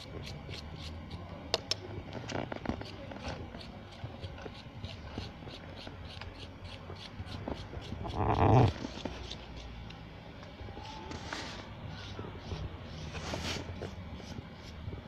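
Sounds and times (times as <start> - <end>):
knife scraping packed snow: 12.9 - 13.8.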